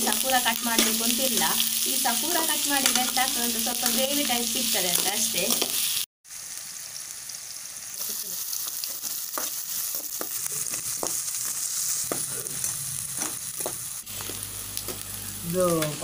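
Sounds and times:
food sizzling in hot oil: 0:00.0 - 0:16.0.

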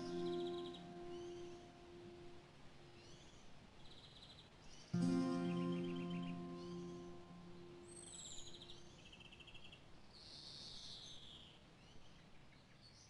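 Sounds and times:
music: 0:00.0 - 0:02.4, 0:05.0 - 0:08.9.

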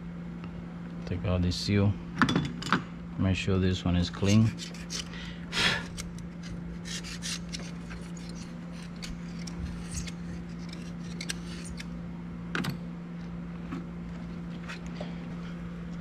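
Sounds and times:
steady low hum: 0:00.0 - 0:16.0
clicks and scrapes of hand work: 0:04.2 - 0:05.1, 0:05.7 - 0:11.9.

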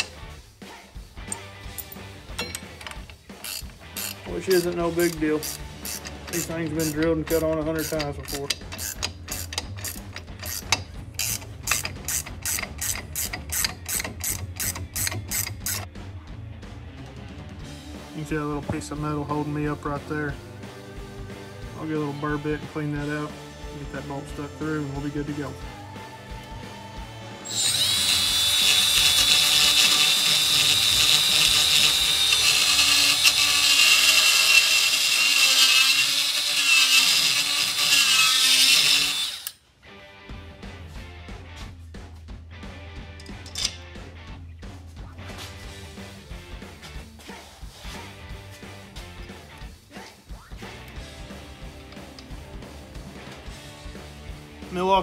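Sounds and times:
ratchet wrench clicking: 0:01.3 - 0:15.9, 0:27.5 - 0:39.6, 0:43.2 - 0:43.8
die grinder whining against steel: 0:02.4 - 0:15.9, 0:27.4 - 0:39.6.

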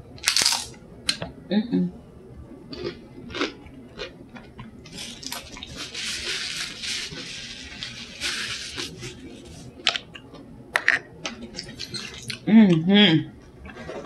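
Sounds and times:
crunching of chips being eaten: 0:00.2 - 0:00.7, 0:02.7 - 0:10.3, 0:11.3 - 0:12.4
paper napkin rustling: 0:04.9 - 0:09.9.

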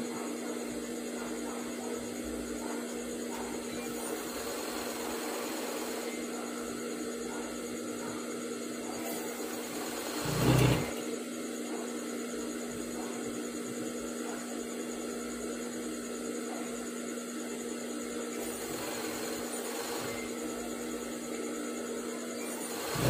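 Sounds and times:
sewing machine motor humming: 0:03.8 - 0:06.1, 0:09.0 - 0:11.1, 0:18.4 - 0:20.8, 0:22.4 - 0:23.0.

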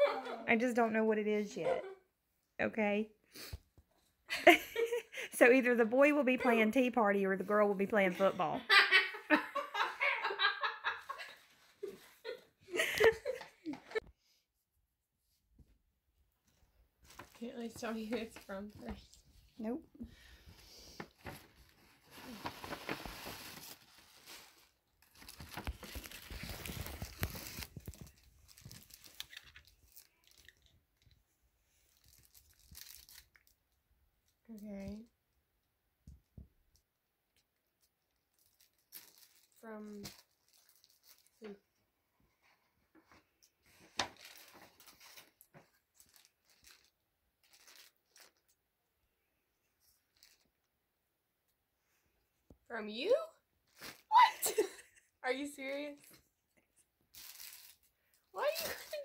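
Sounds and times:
paper rustling: 0:21.0 - 0:30.5
paper tearing and crinkling: 0:21.2 - 0:30.4, 0:31.9 - 0:33.5, 0:43.9 - 0:48.4, 0:57.1 - 0:59.0.

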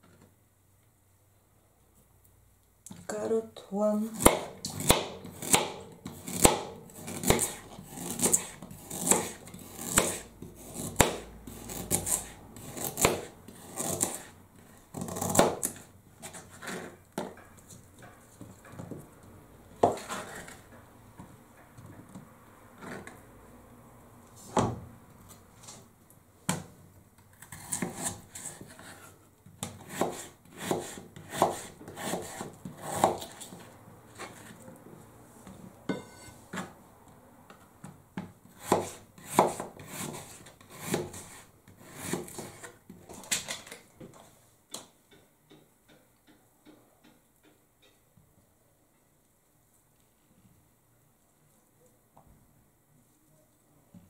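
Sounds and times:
knife chopping on plastic board: 0:04.2 - 0:14.3, 0:14.9 - 0:15.8, 0:29.6 - 0:33.6, 0:38.2 - 0:42.8.

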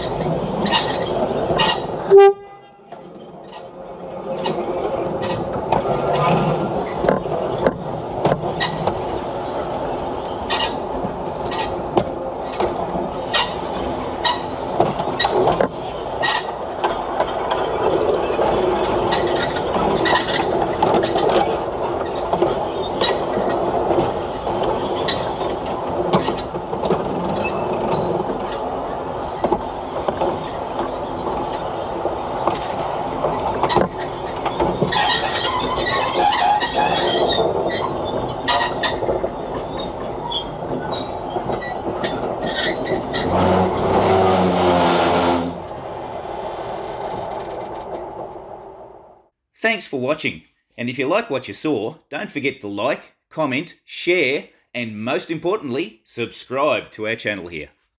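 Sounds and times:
train wheels clicking over rail joints: 0:00.0 - 0:02.1, 0:02.8 - 0:49.2
wheels squealing on rail: 0:00.0 - 0:03.7, 0:04.3 - 0:11.8, 0:12.4 - 0:26.6, 0:27.2 - 0:48.2
railcar rumble: 0:00.0 - 0:49.4.

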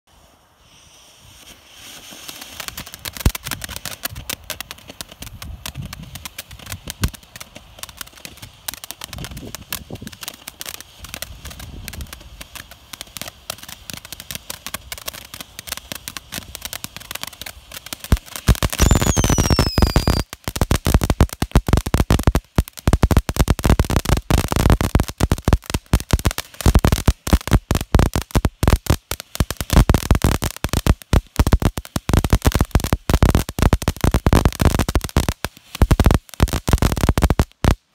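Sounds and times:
firework crackling and popping: 0:00.1 - 0:37.9
firework fountain hissing: 0:00.1 - 0:37.9
falling whistle: 0:18.8 - 0:20.2.

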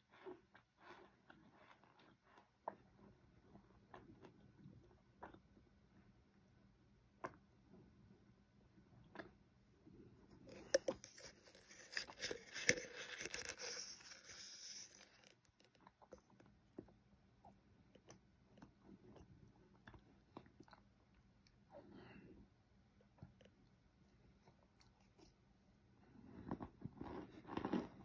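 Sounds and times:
spoon scraping cornstarch powder: 0:10.3 - 0:15.6.

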